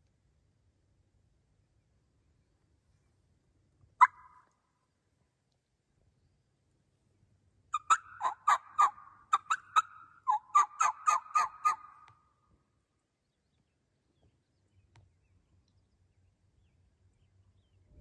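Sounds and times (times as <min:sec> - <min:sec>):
turkey yelping: 0:04.0 - 0:04.5, 0:07.7 - 0:12.1.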